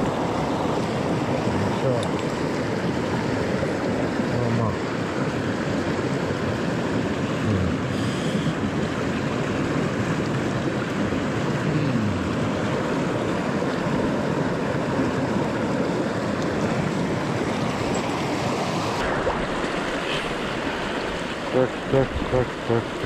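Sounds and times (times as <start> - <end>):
flowing stream water: 0.0 - 23.0.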